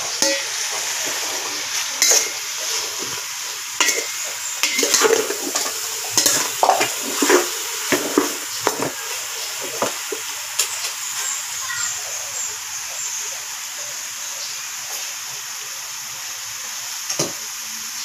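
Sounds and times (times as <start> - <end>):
food sizzling in a pot: 0.0 - 18.0
metal spoon scraping and knocking pot: 2.0 - 2.4, 3.8 - 8.9.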